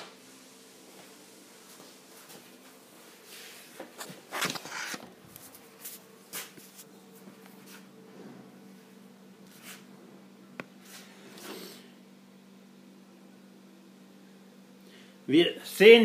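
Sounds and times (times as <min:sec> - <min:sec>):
faint steady hum: 0:00.0 - 0:16.0
camera handling rubbing and shuffling: 0:03.8 - 0:06.9.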